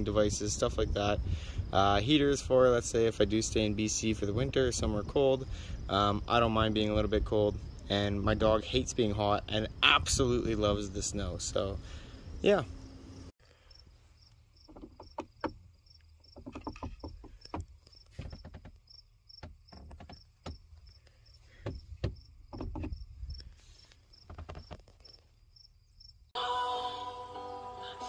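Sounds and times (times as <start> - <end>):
cricket chirping: 0.2 - 26.4
scattered knocks: 14.6 - 15.7, 16.3 - 18.8, 19.4 - 20.7, 21.6 - 23.0
music with singing: 26.4 - 28.0.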